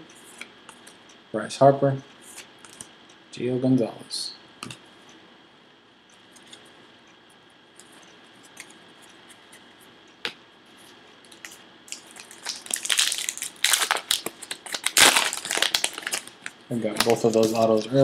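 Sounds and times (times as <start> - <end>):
wrapper crinkling and tearing: 11.9 - 18.0.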